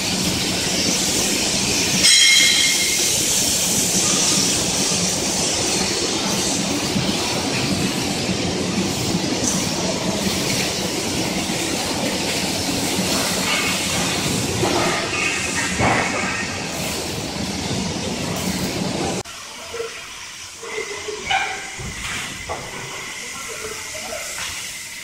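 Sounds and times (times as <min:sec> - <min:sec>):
factory workshop noise: 0:00.0 - 0:25.0.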